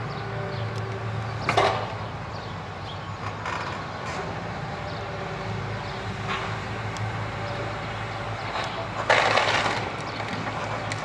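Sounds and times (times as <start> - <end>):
excavator diesel engine running: 0.0 - 11.0
knocks and creaks: 3.2 - 4.3
roof cracking: 9.0 - 11.0.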